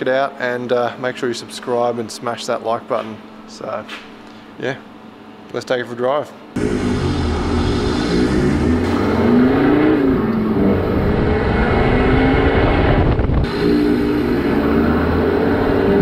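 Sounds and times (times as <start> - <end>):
truck engine changing gear: 6.6 - 16.0
wind and road noise: 6.6 - 16.0.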